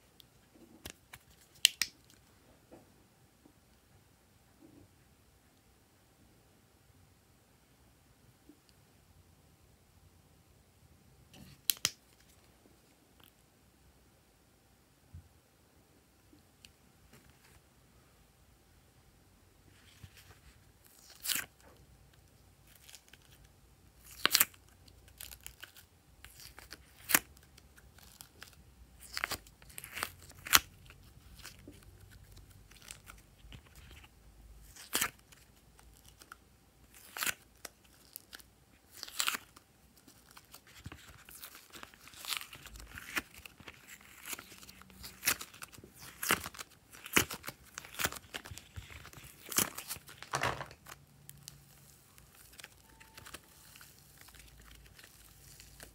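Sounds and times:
crackly squish of clay: 0.1 - 2.2, 19.8 - 55.9.

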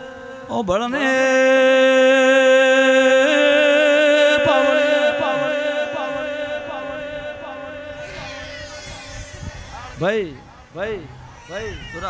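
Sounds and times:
person singing a long note: 0.0 - 8.9.

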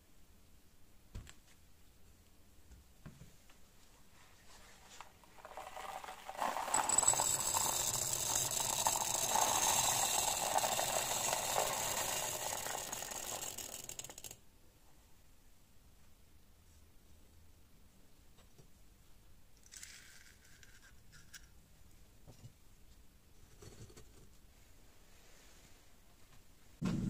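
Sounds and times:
steel balls clattering into crucible: 4.9 - 14.4.

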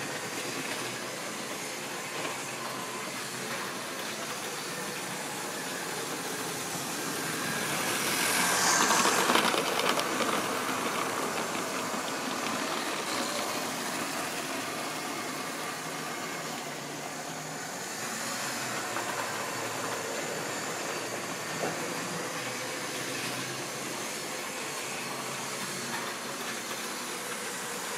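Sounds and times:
model train motor whirring: 0.0 - 27.9
wheels clicking on track: 7.7 - 13.8.

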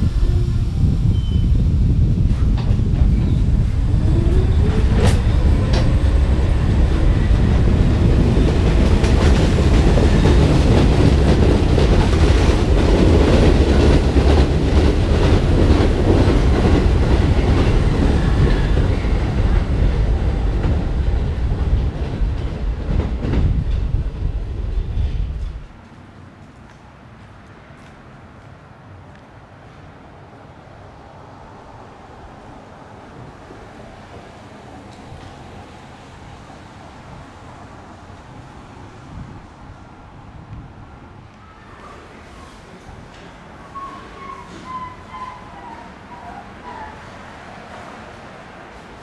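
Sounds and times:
wheels clicking over rail joints: 4.1 - 24.0.

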